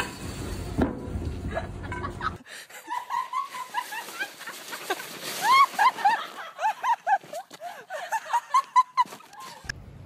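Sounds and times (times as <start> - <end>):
sled sliding on snow: 2.9 - 7.5.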